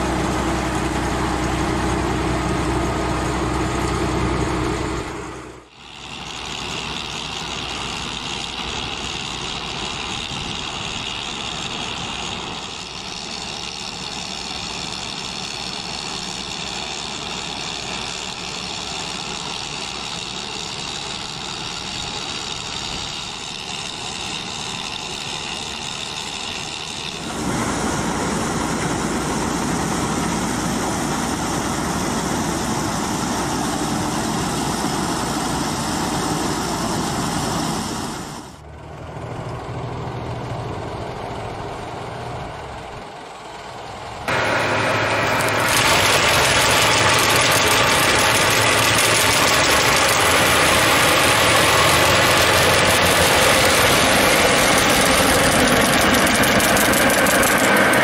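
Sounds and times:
harvester conveyor running: 0:00.0 - 0:58.0
tractor engine: 0:00.0 - 0:58.0
brush crusher grinding brush: 0:05.7 - 0:29.4, 0:44.3 - 0:58.0.

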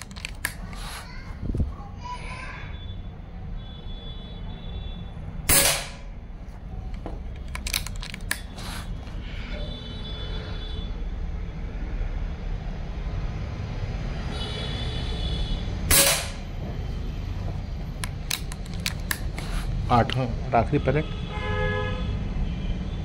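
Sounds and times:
air rifle shot: 0:05.5 - 0:06.1, 0:15.9 - 0:16.4.

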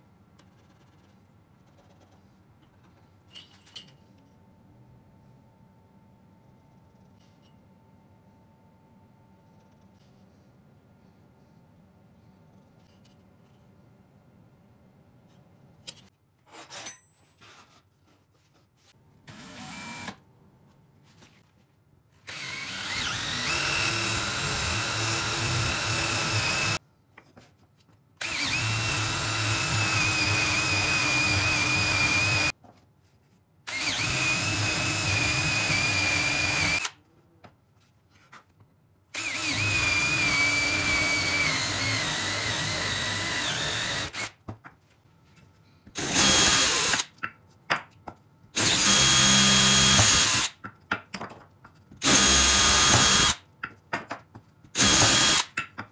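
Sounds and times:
faint handling sounds: 0:17.1 - 0:19.1, 0:32.6 - 0:33.6, 0:37.0 - 0:39.0
drill whining: 0:19.3 - 0:20.2, 0:22.3 - 0:26.8, 0:28.2 - 0:32.5, 0:33.7 - 0:36.9, 0:39.2 - 0:44.3, 0:46.0 - 0:47.1, 0:48.6 - 0:50.5, 0:52.0 - 0:53.4, 0:54.8 - 0:55.5.

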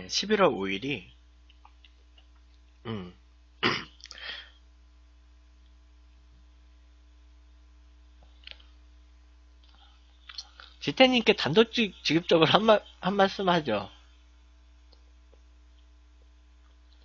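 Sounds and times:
low electrical hum: 0:00.0 - 0:17.0
man's wordless vocal sounds: 0:02.9 - 0:03.2.

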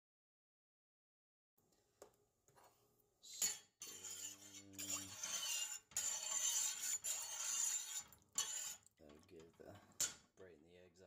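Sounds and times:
spoon stirring in metal pot: 0:02.5 - 0:10.3.

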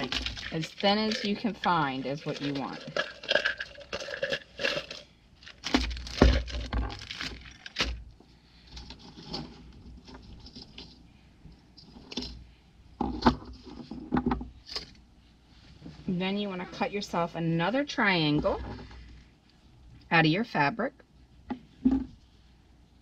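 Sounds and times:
metal wire clinking and rattling: 0:00.0 - 0:05.0.

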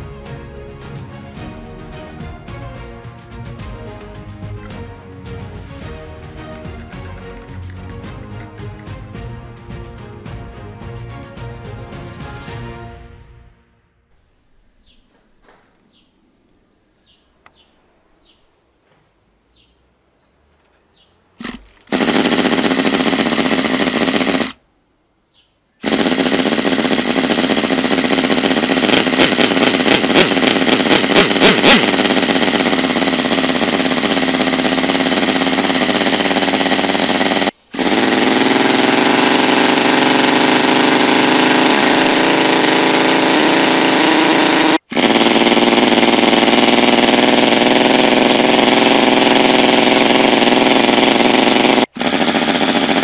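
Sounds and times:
model engine buzzing: 0:21.4 - 0:24.6, 0:25.8 - 0:53.0.

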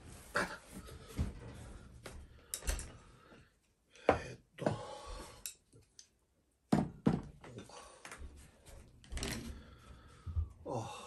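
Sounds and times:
knocks and thuds of dishes: 0:06.7 - 0:07.4.

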